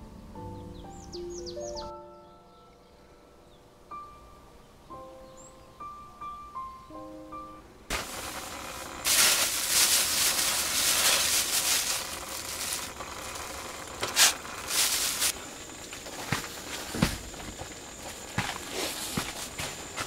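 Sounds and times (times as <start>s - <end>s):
plastic bag crinkling: 7.9s - 20.0s.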